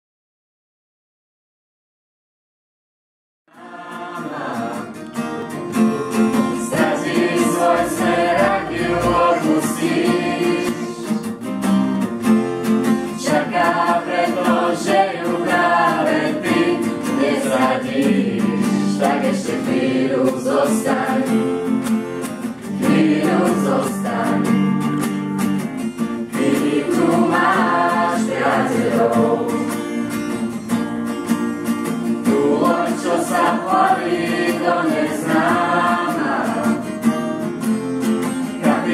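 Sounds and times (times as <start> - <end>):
strummed acoustic guitar: 3.5 - 38.9
students singing in chorus: 3.6 - 11.3, 13.2 - 21.8, 22.6 - 24.9, 26.3 - 29.8, 32.2 - 36.9, 38.5 - 38.9.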